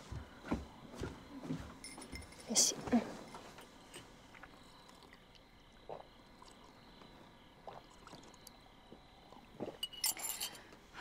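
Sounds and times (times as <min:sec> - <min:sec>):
person swallowing water: 0:05.8 - 0:06.8, 0:07.6 - 0:09.8
cup clinking: 0:09.6 - 0:10.7.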